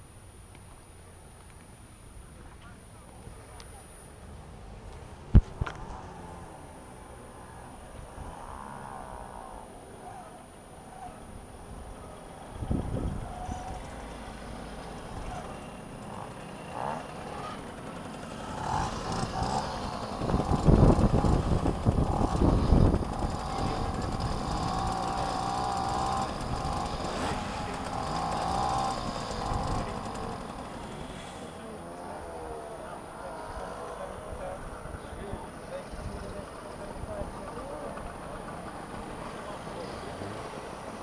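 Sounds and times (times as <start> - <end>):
two-stroke moped engines: 0.0 - 41.0.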